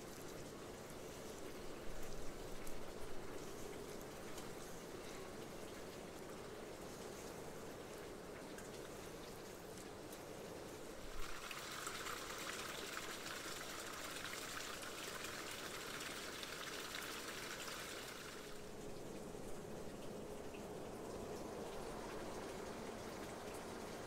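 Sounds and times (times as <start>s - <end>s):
water pouring: 11.0s - 18.6s.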